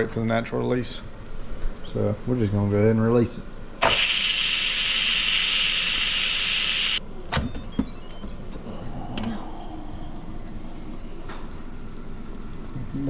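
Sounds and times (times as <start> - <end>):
steam hissing from valve: 3.8 - 7.0.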